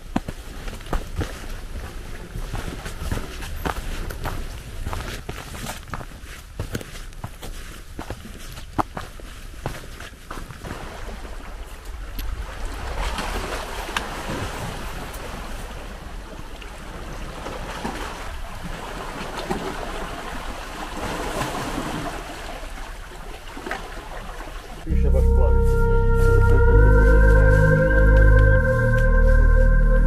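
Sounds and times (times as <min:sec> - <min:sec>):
footsteps on stony path: 0:00.0 - 0:10.8
wind rumbling on microphone: 0:00.0 - 0:20.0
waves washing over rocky shore: 0:10.6 - 0:24.9.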